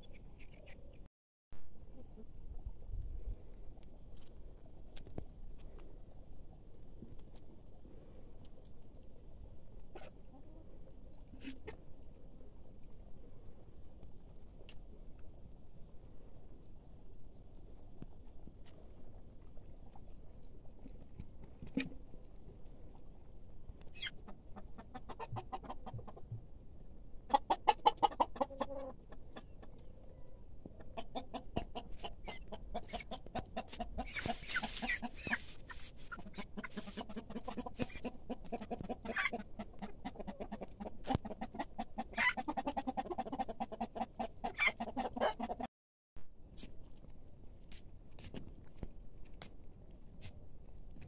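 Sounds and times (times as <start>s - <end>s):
chickens clucking: 9.9s - 11.8s, 23.9s - 26.4s, 27.2s - 29.9s, 30.6s - 45.7s.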